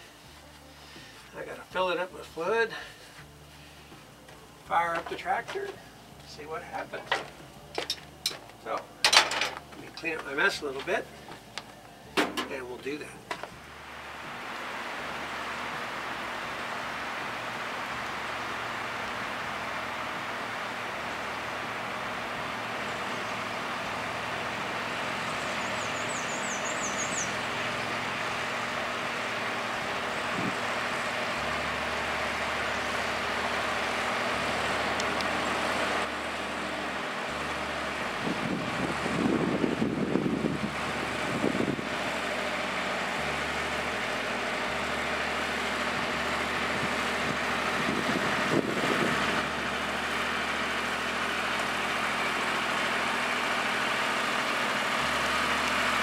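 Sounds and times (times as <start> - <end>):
tractor diesel engine running: 0.0 - 56.0
rough engine rumbling surges: 12.5 - 56.0.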